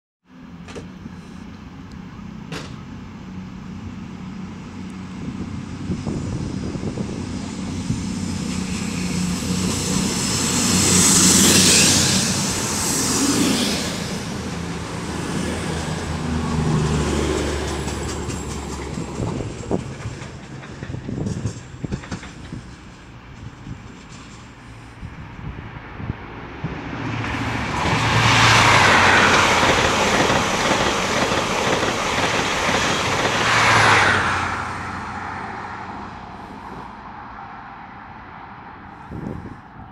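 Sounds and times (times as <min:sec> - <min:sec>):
train wheels hissing on rails: 0:05.6 - 0:25.3, 0:27.7 - 0:35.3.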